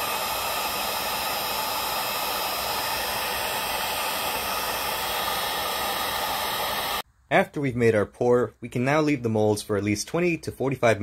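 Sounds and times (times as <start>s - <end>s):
heat gun blowing hot air: 0.0s - 7.0s.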